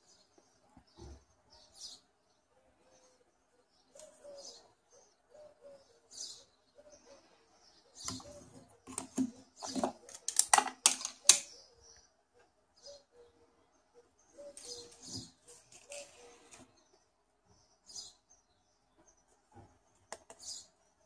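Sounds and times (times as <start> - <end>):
small birds chirping: 0.0 - 21.0
pigeons cooing: 2.8 - 10.4, 11.2 - 16.8.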